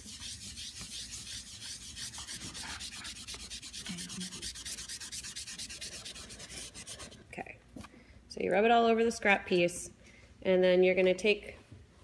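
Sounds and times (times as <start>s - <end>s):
charcoal scraping on paper: 0.0s - 7.3s.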